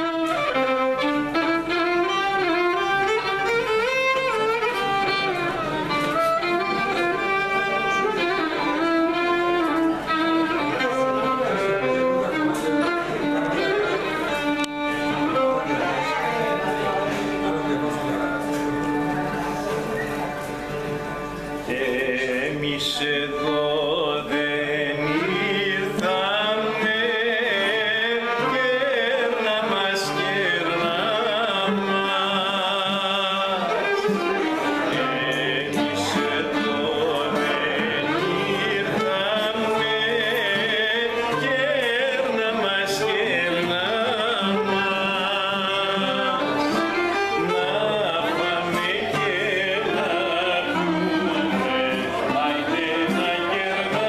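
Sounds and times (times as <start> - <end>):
folk ensemble playing: 0.0 - 54.0
man singing: 21.6 - 54.0.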